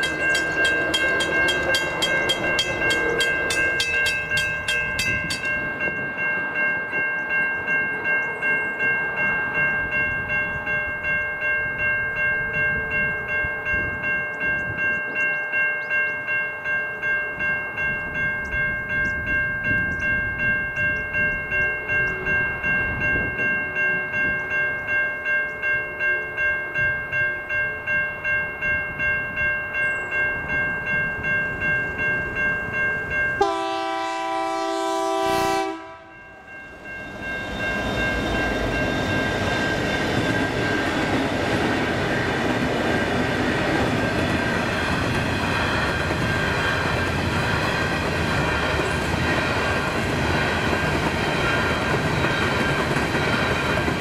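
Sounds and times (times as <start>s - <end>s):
mechanical crossing bell strikes: 0.0s - 34.2s, 35.6s - 41.7s
electronic crossing bell ringing: 0.0s - 49.8s
train horn: 33.4s - 36.5s.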